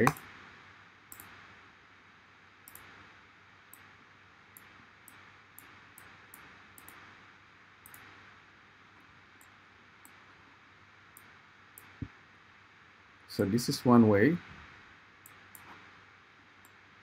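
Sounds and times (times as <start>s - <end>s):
computer mouse clicks: 0.0s - 0.3s, 1.1s - 1.4s, 2.6s - 3.0s, 4.5s - 7.0s, 7.8s - 8.1s, 15.2s - 15.8s, 16.6s - 16.8s
low steady hiss: 0.0s - 17.0s.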